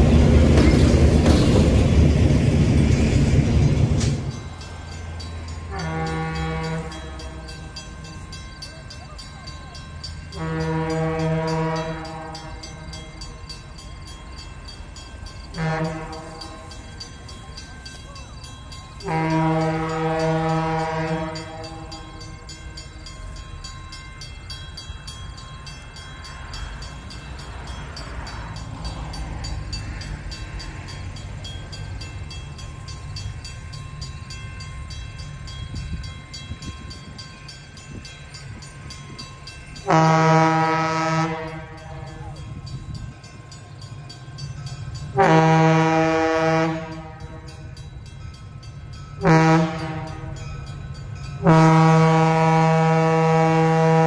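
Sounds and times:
low rumble of train: 0.0 - 54.0
train horn blasts: 5.6 - 7.6, 10.3 - 13.0, 15.5 - 16.8, 19.0 - 22.3, 39.8 - 42.4, 45.1 - 47.7, 49.2 - 50.5, 51.4 - 54.0.

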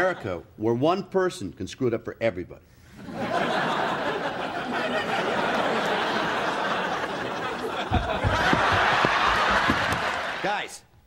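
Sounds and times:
studio audience laughing: 3.0 - 10.4.

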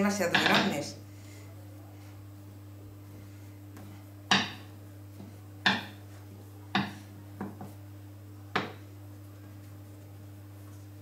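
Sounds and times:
rolling pin knocking on stone worktop: 4.3 - 4.7, 5.6 - 6.0, 6.7 - 7.7, 8.5 - 8.8.

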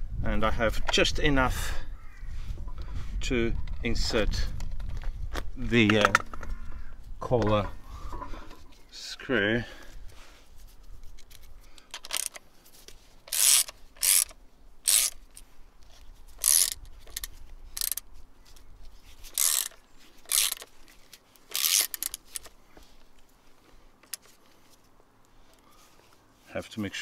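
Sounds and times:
socket ratchet clicking: 11.3 - 12.4, 13.3 - 15.4, 16.4 - 18.1, 19.3 - 20.7, 21.5 - 22.6, 24.0 - 24.3.

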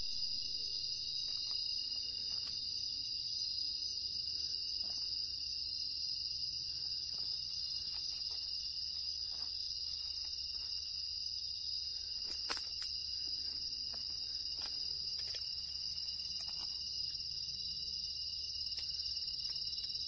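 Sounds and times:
crickets chirping: 0.0 - 20.0
faint steady tone: 0.0 - 20.0
faint ticks and rustles: 12.1 - 17.2.

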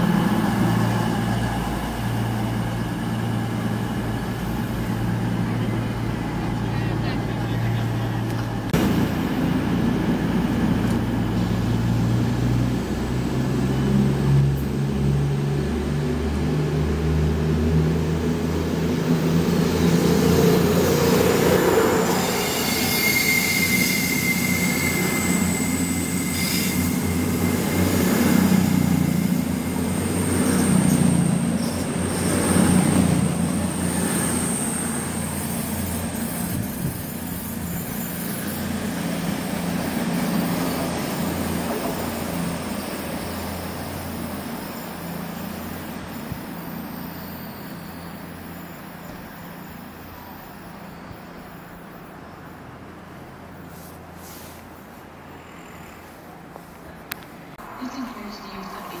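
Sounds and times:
train diesel engines: 0.0 - 59.0
wheels squealing: 21.4 - 32.4.

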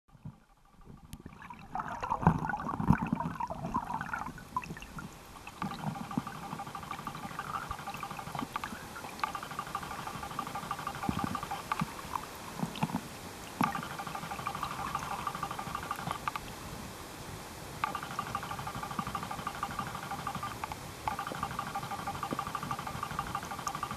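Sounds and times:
underwater gurgling: 0.1 - 16.6
faint hum: 0.1 - 23.9.

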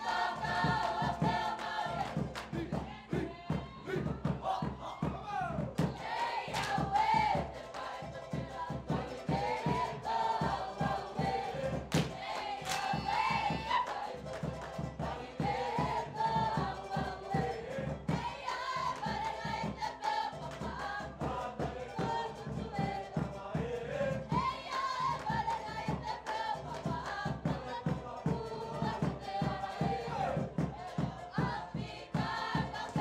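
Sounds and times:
bass drum: 0.0 - 7.6, 8.2 - 33.0
fast drum beat: 0.0 - 33.0
group of voices singing: 0.0 - 33.0.

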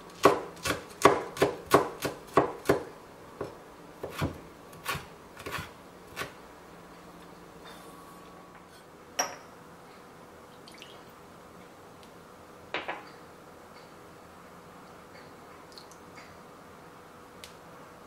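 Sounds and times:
knife chopping on wooden board: 0.2 - 6.4
glass bowls clinking: 8.6 - 9.6.

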